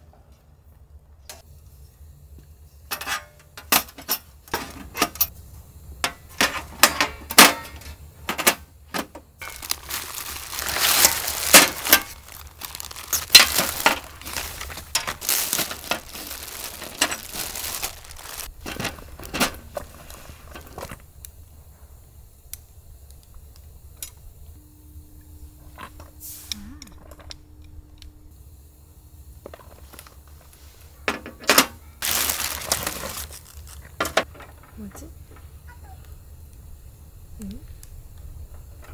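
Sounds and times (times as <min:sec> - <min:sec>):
metal parts clinking: 0:09.4 - 0:19.9
plastic packaging crinkling: 0:09.4 - 0:20.9, 0:32.0 - 0:34.2.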